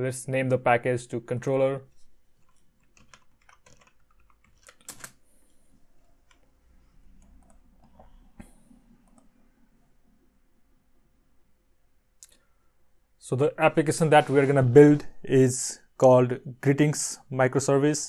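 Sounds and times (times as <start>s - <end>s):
keyboard typing: 1.9s - 5.2s, 6.0s - 8.4s, 9.0s - 9.4s.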